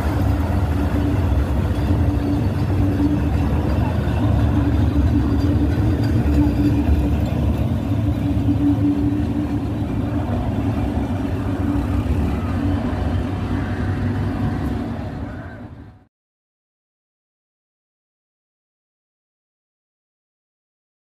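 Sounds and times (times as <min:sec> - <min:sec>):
train coaches rumbling on track: 0:00.0 - 0:16.1
train hum: 0:00.0 - 0:16.1.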